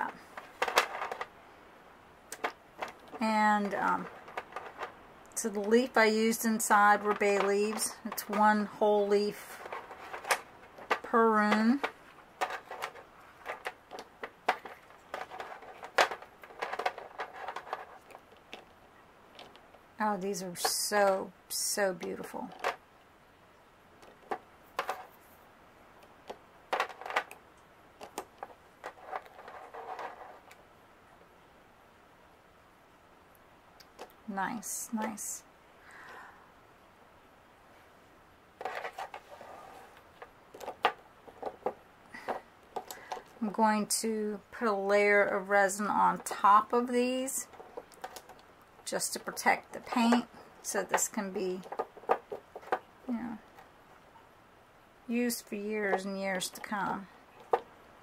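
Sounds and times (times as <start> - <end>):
stones clicking and clattering: 0.1 - 1.4, 2.3 - 8.7, 9.3 - 19.8, 24.0 - 25.2, 26.0 - 30.6, 40.0 - 43.4, 47.4 - 53.8
resin stones clicking together: 40.2 - 43.4.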